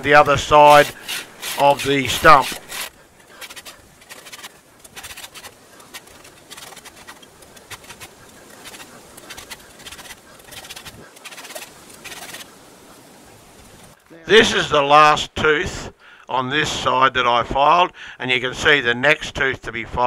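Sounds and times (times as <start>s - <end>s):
file rasping on chainsaw chain: 0.5s - 12.5s.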